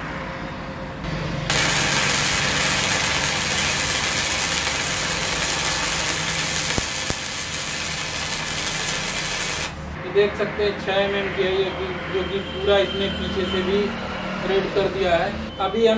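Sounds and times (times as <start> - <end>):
welding arc hissing: 1.5 - 10.0.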